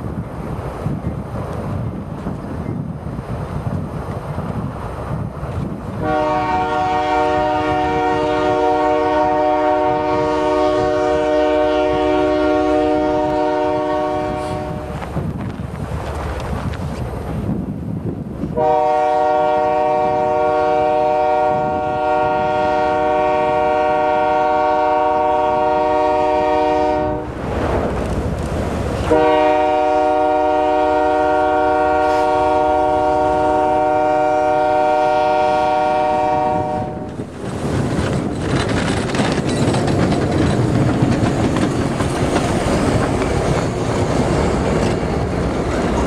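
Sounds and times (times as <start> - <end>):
train rumbling: 0.0 - 46.0
train horn blasts: 6.0 - 15.0, 18.6 - 27.4, 29.0 - 37.2.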